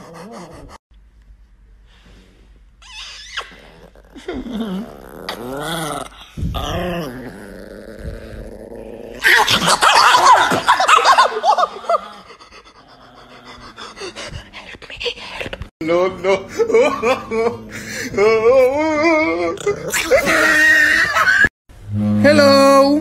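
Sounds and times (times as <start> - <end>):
small dog growling: 3.5 - 9.2.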